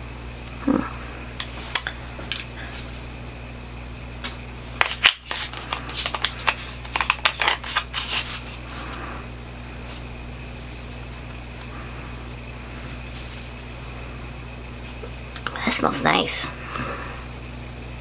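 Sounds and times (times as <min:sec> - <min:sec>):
paper rustling: 0:04.8 - 0:08.6.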